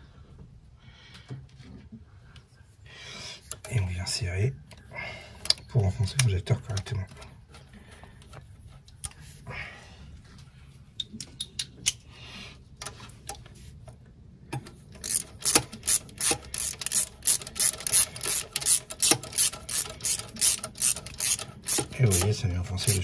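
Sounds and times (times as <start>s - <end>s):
ratchet wrench clicking: 15.0s - 23.0s.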